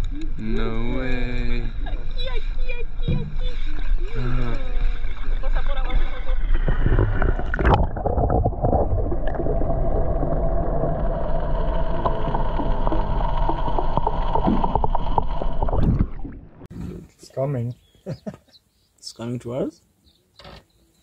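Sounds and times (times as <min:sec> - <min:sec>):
droning hum underwater: 0:00.0 - 0:16.7
underwater gurgling: 0:00.0 - 0:16.7
water sloshing: 0:01.7 - 0:16.7.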